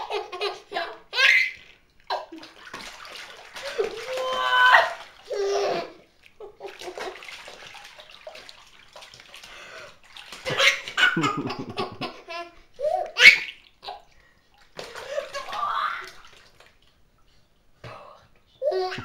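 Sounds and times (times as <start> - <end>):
water splashing in baby bath: 0.1 - 12.2, 12.8 - 17.0
baby laughing and squealing: 0.2 - 1.6, 3.7 - 6.0, 12.3 - 13.6.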